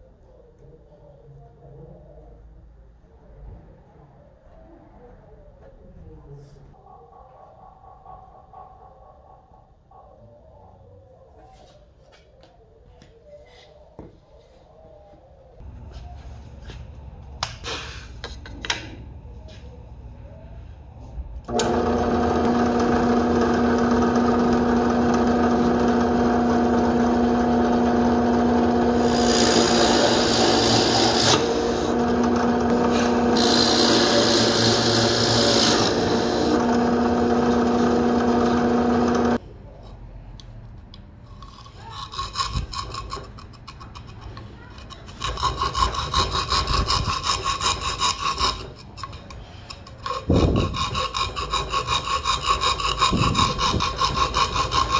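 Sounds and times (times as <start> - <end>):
drill bit cutting plywood: 21.5 - 39.4, 50.0 - 54.9
drill press motor humming: 21.5 - 39.4
saw blade sawing plywood: 21.5 - 39.4, 41.4 - 54.9.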